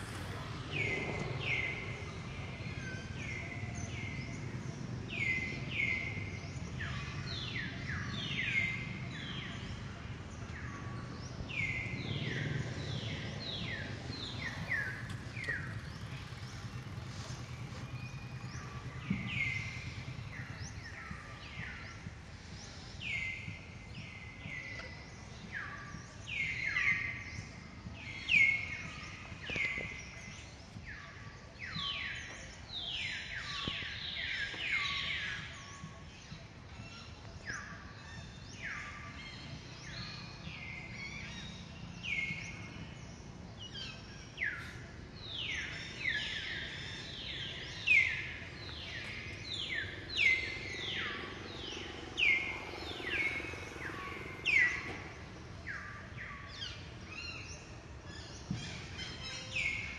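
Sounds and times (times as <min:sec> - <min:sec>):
birds whistling downward: 0:45.4 - 0:57.6.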